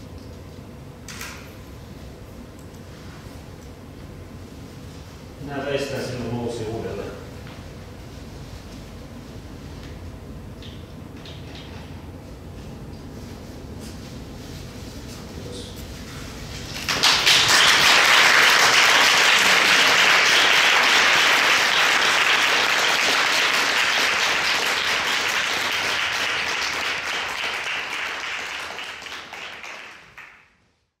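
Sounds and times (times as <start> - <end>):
audience applauding: 16.7 - 30.5.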